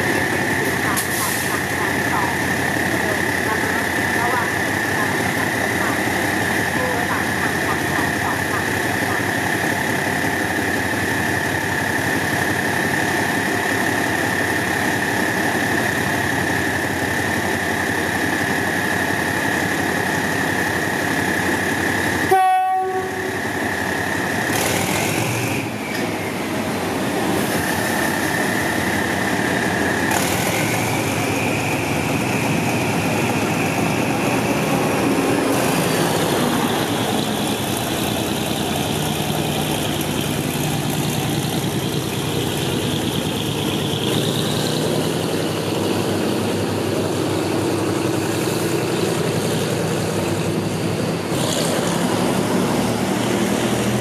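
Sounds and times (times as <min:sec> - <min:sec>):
diesel locomotive engine: 0:00.0 - 0:54.0.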